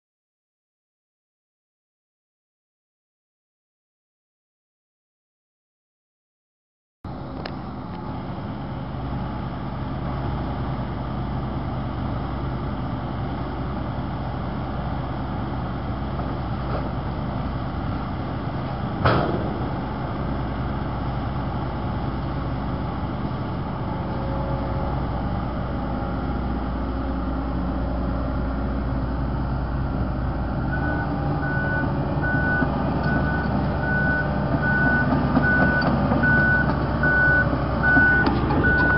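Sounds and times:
excavator diesel engine: 0:07.1 - 0:38.9
loud bang: 0:19.0 - 0:20.2
backup alarm beeping: 0:30.7 - 0:38.9.

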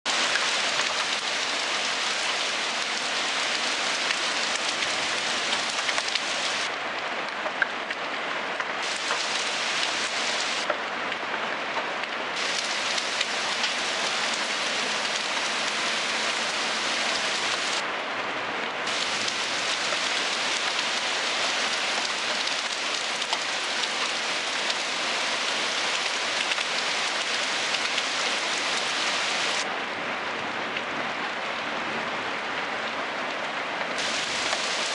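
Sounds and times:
heavy rain pouring: 0:00.1 - 0:34.9
raindrop ticks: 0:04.0 - 0:06.3, 0:07.3 - 0:10.0, 0:10.6 - 0:15.8, 0:22.0 - 0:24.8, 0:26.0 - 0:28.2.

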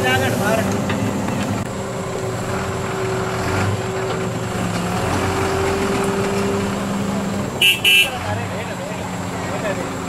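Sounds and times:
truck diesel engine running: 0:00.0 - 0:10.0.

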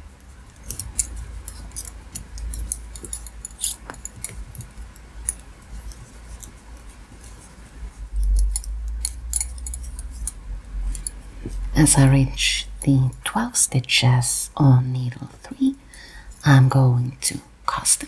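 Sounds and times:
knitting needles clicking: 0:00.5 - 0:07.4, 0:08.1 - 0:11.2.

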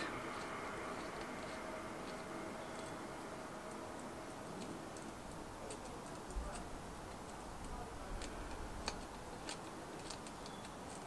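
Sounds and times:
small tool clicks: 0:05.7 - 0:11.0.

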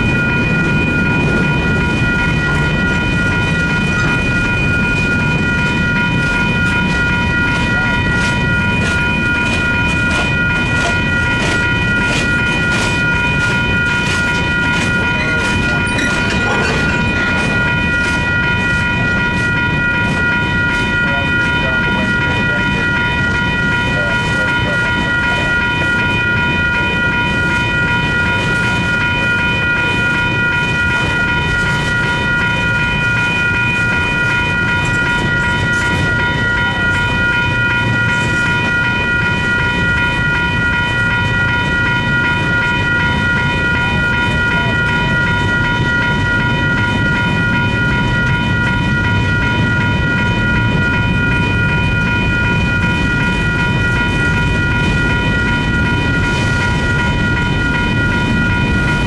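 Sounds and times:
crossing bell ringing: 0:00.0 - 0:59.0
train wheels rumbling and clacking: 0:00.0 - 0:59.0.

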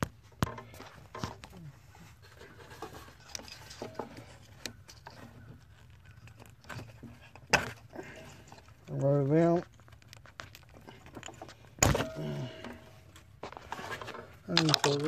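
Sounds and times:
plastic connector clicks and rustles: 0:12.6 - 0:15.0.

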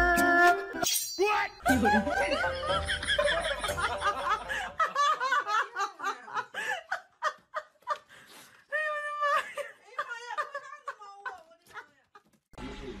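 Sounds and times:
person laughing high-pitched: 0:01.6 - 0:04.8.

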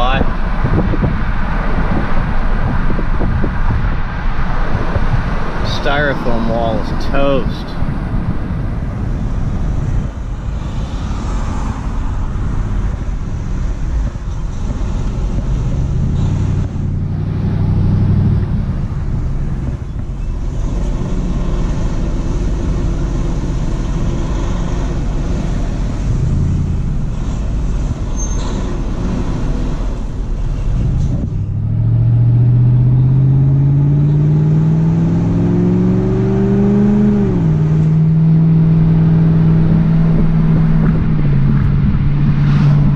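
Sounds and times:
road and wind noise: 0:00.0 - 0:42.9
vehicle engine accelerating: 0:00.0 - 0:42.9.

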